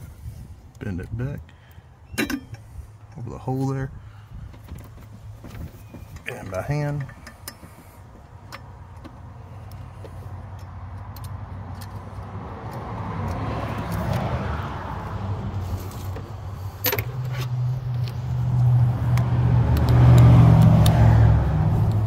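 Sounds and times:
vehicle passing: 0:09.2 - 0:22.0.

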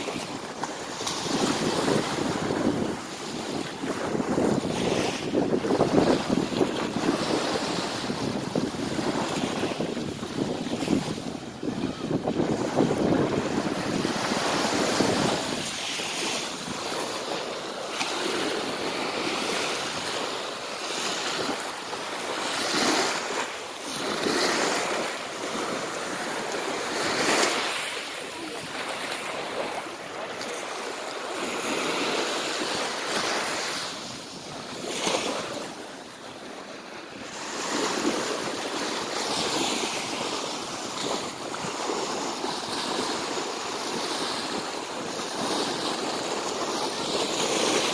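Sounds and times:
wind rumbling on microphone: 0:00.0 - 0:17.2
waves breaking on pebble beach: 0:00.0 - 0:36.0.

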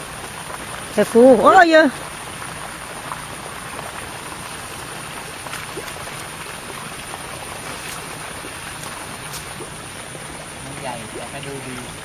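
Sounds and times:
frogs calling: 0:00.0 - 0:12.0
steady hiss: 0:00.0 - 0:12.0.

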